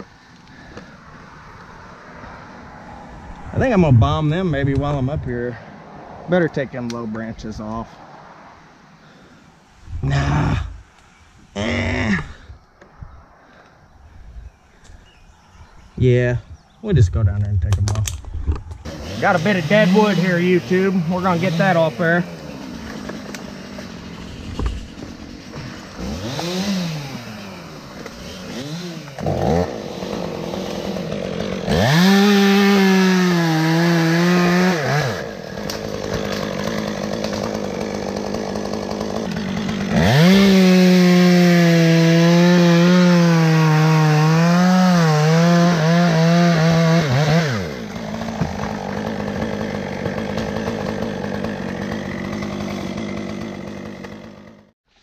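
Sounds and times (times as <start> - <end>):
chainsaw cutting wood: 18.7 - 54.8
chainsaw idling and revving: 18.8 - 54.8.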